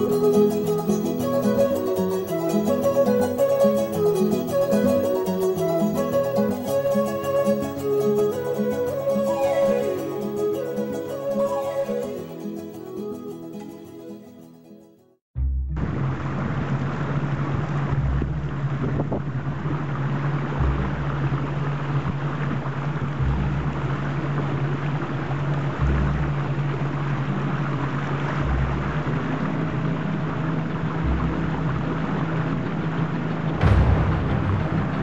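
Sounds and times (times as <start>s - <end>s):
wind and water rushing: 0.0s - 12.8s, 15.8s - 35.0s
motorboat engine: 15.4s - 33.9s
background music with low boom: 15.4s - 35.0s.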